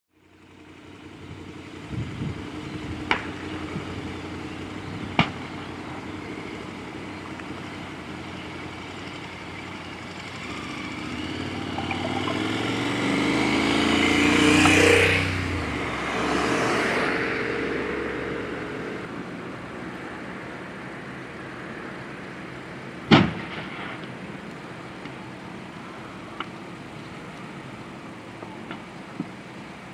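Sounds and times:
vehicles passing on road: 0.1 - 29.9
fire burning: 20.6 - 29.9.

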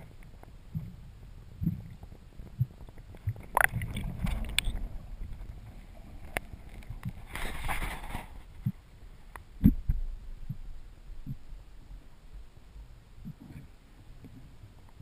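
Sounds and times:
muffled underwater knocks and thumps: 0.0 - 1.0, 1.6 - 8.8, 9.6 - 10.6.

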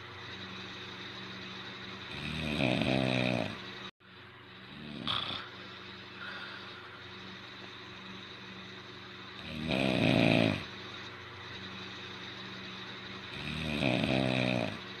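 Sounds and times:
man snoring: 2.0 - 3.6, 4.6 - 7.3, 9.4 - 10.8, 13.3 - 15.0.

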